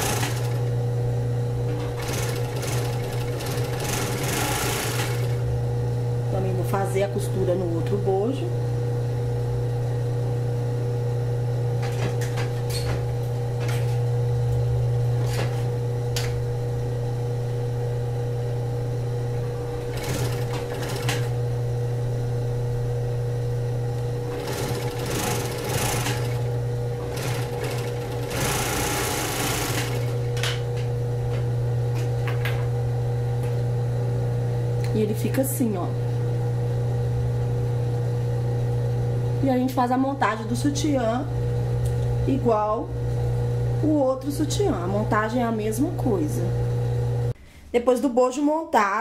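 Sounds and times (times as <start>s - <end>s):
bursts of machine sewing: 0.0s - 0.7s, 1.8s - 5.5s, 19.8s - 21.4s, 24.3s - 30.3s
sewing machine motor humming: 0.0s - 8.2s, 19.2s - 21.8s, 23.7s - 30.9s.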